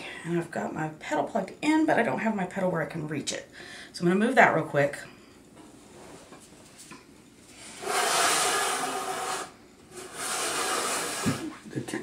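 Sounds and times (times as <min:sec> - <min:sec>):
foot pedal scraping on floor: 0:07.8 - 0:11.6.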